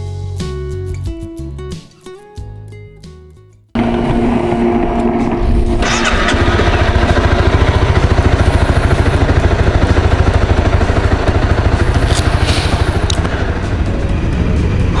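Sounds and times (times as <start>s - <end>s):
motorcycle engine idling: 3.8s - 15.0s.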